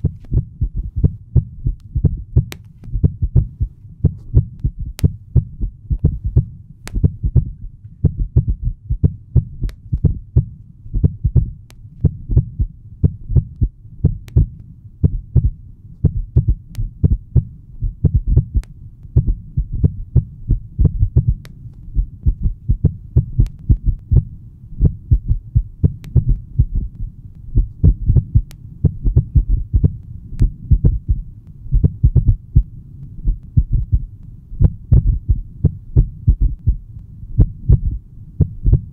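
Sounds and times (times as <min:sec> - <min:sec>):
low thudding pulses: 0:00.0 - 0:38.9
faint sharp clicks: 0:23.4 - 0:24.1.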